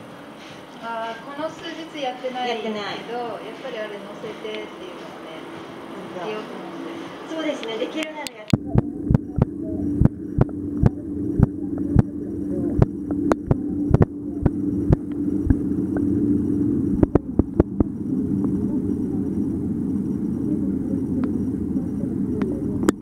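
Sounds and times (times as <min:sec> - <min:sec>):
underwater low rumble with hum: 0:08.6 - 0:23.0.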